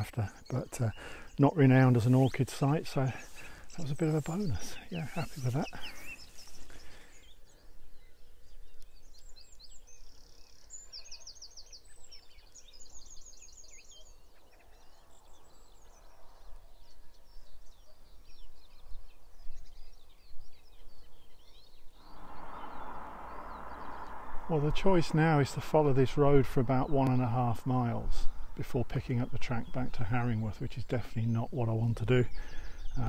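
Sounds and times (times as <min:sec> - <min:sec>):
songbirds chirping and trilling: 0:00.0 - 0:33.0
faint low rumble: 0:22.0 - 0:28.8.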